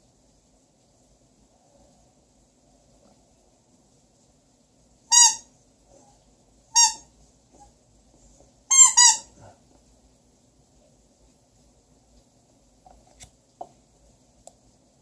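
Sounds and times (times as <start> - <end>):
squeaky toy squeaks: 5.1 - 5.5, 6.7 - 7.1, 8.7 - 9.3.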